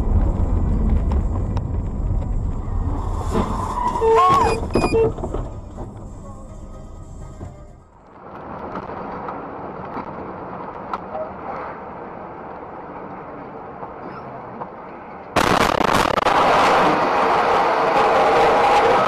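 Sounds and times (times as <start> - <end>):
vehicle crash crunching and scraping: 0.0 - 6.3
muffled road and engine noise: 0.0 - 19.0.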